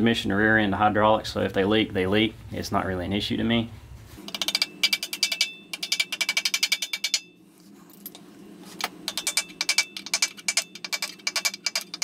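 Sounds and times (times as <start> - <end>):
rapid metal tapping: 4.2 - 7.4, 9.0 - 12.0.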